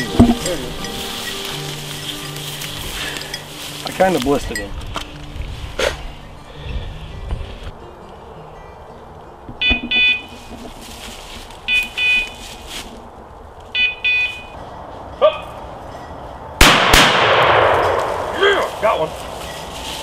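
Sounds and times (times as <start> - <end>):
rustling: 0.0 - 6.5, 9.6 - 15.6, 17.7 - 20.0
electronic collar double beeps: 9.6 - 10.3, 13.8 - 14.5
loud sharp crack: 16.6 - 18.7.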